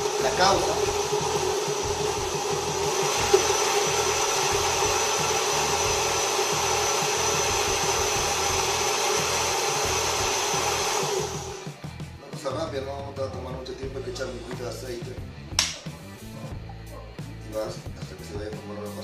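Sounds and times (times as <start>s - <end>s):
electric blender running: 0.0s - 11.8s.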